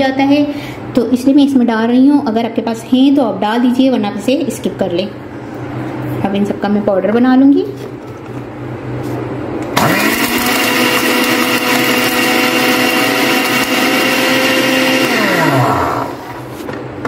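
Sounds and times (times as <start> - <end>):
blender grinder motor whine: 9.8 - 16.4.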